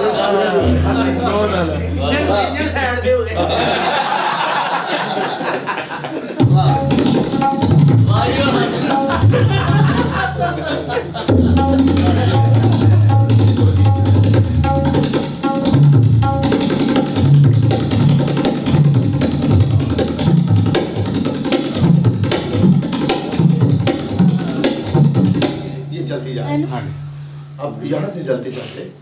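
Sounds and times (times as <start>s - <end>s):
deep bass drum strokes bending: 0.6s - 4.7s
tabla fast rolling rhythm: 0.6s - 5.6s, 6.3s - 27.6s
rapid treble drum strokes: 6.4s - 26.3s.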